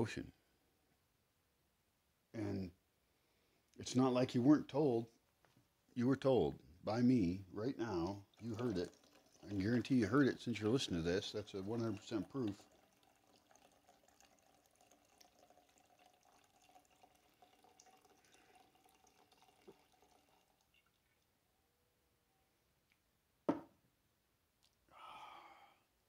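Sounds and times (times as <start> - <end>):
sharp knock: 23.5 - 23.7
man exhaling: 24.9 - 25.9.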